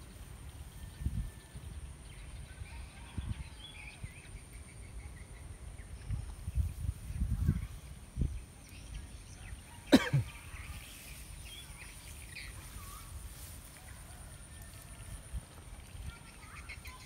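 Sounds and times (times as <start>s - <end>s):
sharp cough-like call: 9.9s - 10.4s.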